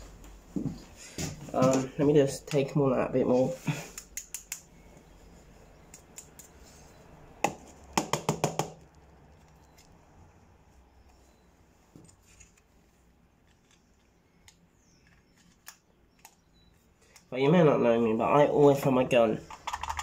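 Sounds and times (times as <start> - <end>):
clicks and taps: 3.9 - 4.7, 5.9 - 6.6.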